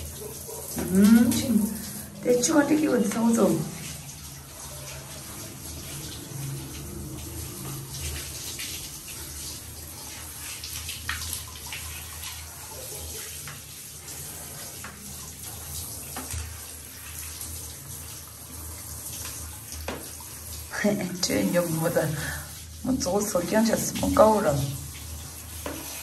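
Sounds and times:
shower spray on dog's coat: 0:00.0 - 0:26.0.

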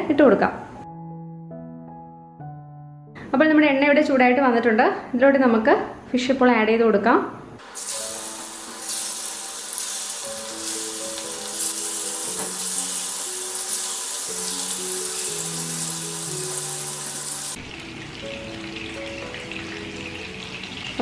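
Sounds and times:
slow background music: 0:00.0 - 0:04.7, 0:07.6 - 0:21.0
fish sizzling in hot oil: 0:07.6 - 0:21.0.

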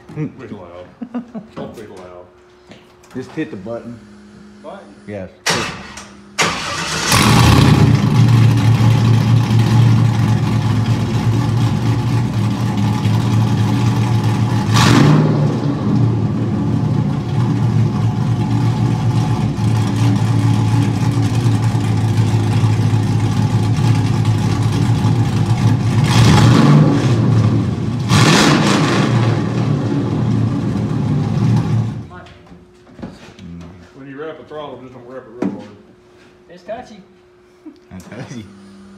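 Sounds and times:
engine starting up: 0:05.5 - 0:08.9
loud engine idle: 0:06.4 - 0:14.8, 0:15.6 - 0:26.2
engine revving: 0:06.4 - 0:32.0.

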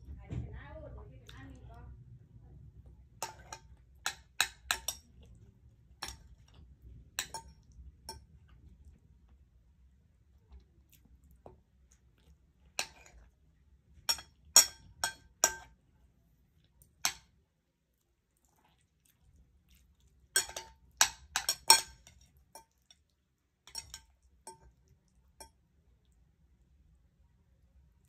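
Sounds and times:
cutlery clinking against plate: 0:03.2 - 0:05.3, 0:06.0 - 0:06.6, 0:07.2 - 0:08.3, 0:12.8 - 0:13.2, 0:14.1 - 0:15.7, 0:20.4 - 0:23.0, 0:23.7 - 0:24.8.

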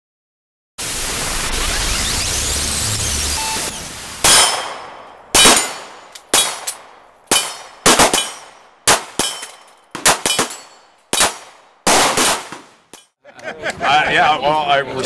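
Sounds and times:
sharp metallic impacts ringing: 0:04.2 - 0:13.2.

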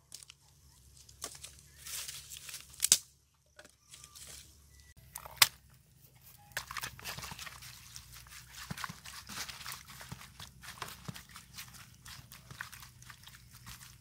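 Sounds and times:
dry sticks snapping: 0:02.3 - 0:03.7
hands mixing food rustling: 0:06.4 - 0:14.0.

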